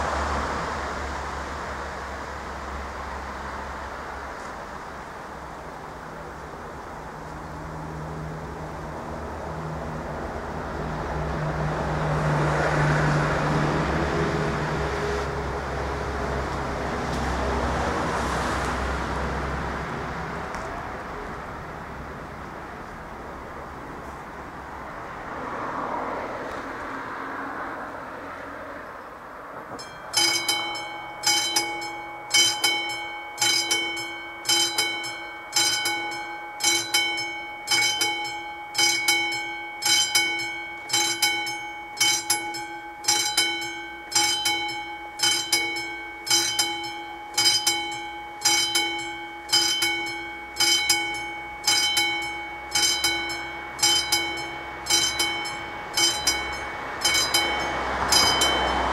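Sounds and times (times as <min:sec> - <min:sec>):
level crossing warning bell: 0:29.1 - 0:58.9.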